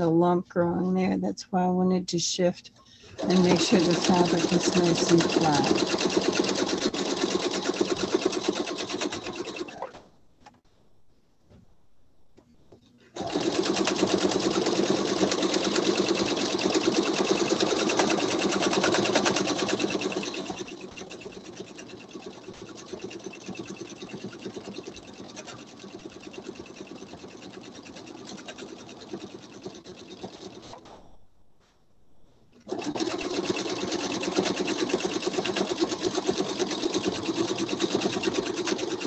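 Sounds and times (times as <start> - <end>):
sewing machine stitching: 3.0 - 10.0, 13.1 - 31.0, 32.6 - 39.0.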